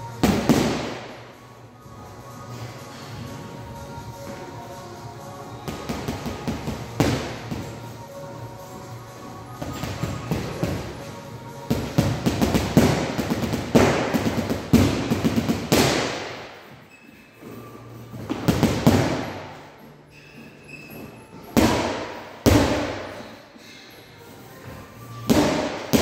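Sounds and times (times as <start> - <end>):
gloves punching heavy bag: 0.2 - 1.0, 11.7 - 16.4, 18.2 - 19.4, 21.6 - 23.1, 25.3 - 26.0.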